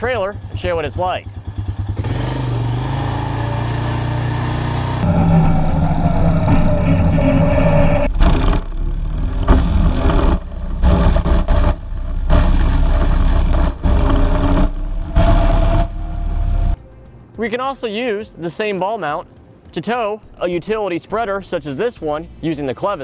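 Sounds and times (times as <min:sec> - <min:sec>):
atv engine running: 0:00.0 - 0:16.8.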